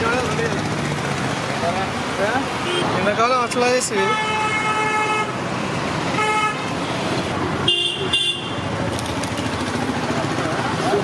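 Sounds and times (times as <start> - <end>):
street traffic: 0.0 - 11.0
vehicle horns tooting: 2.6 - 3.0, 4.0 - 5.4, 6.1 - 6.6, 7.6 - 8.7.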